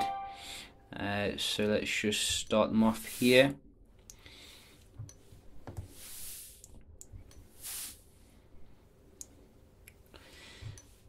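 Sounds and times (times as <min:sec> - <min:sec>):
short soft hisses: 0:07.6 - 0:08.0.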